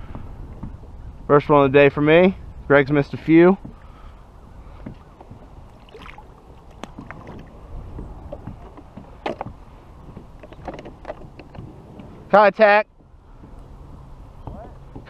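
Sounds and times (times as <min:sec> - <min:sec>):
wind and water rumble: 0:00.0 - 0:15.0
fishing gear clicking in kayak: 0:04.8 - 0:12.1.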